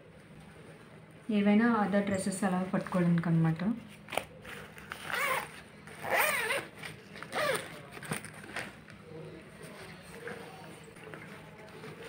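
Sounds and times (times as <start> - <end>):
zipper opening and closing: 4.9 - 7.8.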